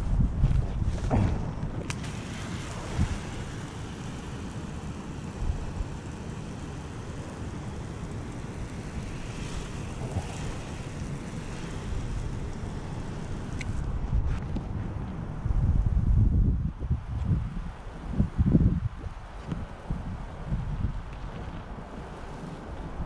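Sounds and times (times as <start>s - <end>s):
wind rumbling on microphone: 0.0s - 23.0s
spray gun hissing on shingles: 1.8s - 13.9s, 21.3s - 23.0s.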